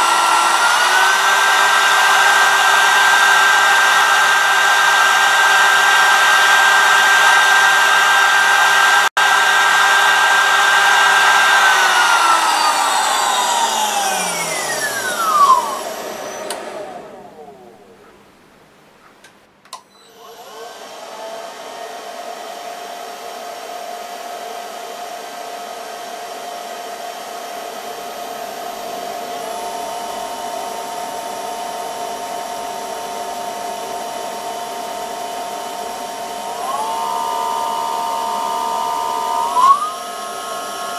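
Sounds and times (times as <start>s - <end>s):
spindle motor whining: 0.0s - 9.1s, 10.1s - 17.9s, 35.8s - 40.9s.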